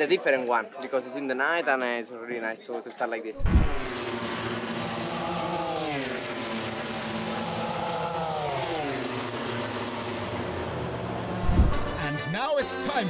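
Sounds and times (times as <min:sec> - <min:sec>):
race motorcycle engine at high revs: 0:03.4 - 0:11.9.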